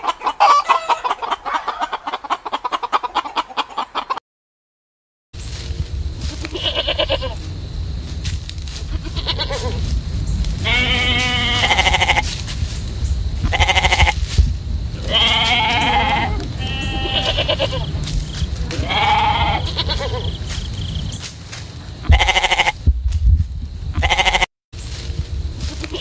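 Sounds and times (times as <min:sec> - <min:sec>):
hens clucking: 0:00.0 - 0:04.2, 0:08.8 - 0:09.9, 0:10.6 - 0:12.5, 0:13.4 - 0:14.2, 0:15.0 - 0:21.2, 0:22.0 - 0:22.8
low rumble: 0:05.4 - 0:25.7
sheep and lambs bleating: 0:06.2 - 0:07.4, 0:08.9 - 0:09.8, 0:10.6 - 0:12.4, 0:13.4 - 0:14.2, 0:15.0 - 0:20.4, 0:22.0 - 0:22.8, 0:24.0 - 0:24.5, 0:25.6 - 0:26.0.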